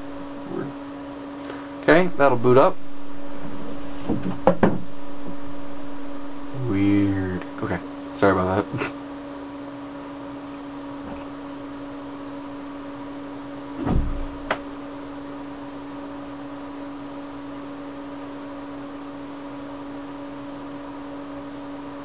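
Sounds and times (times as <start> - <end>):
machine hum: 0.0 - 22.0
muffled thump: 3.4 - 5.4, 13.8 - 14.6.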